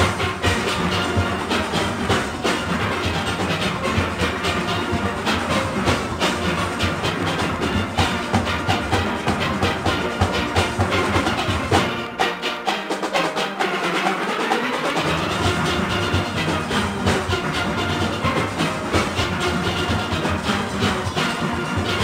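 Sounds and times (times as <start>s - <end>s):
steel orchestra playing: 0.0s - 22.0s.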